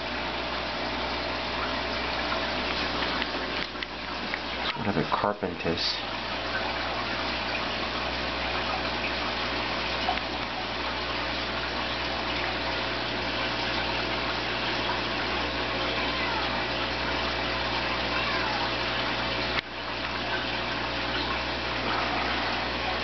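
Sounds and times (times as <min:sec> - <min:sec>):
air line bubbling: 0:00.0 - 0:23.0
pump humming: 0:00.0 - 0:23.0
water churning: 0:00.0 - 0:23.0.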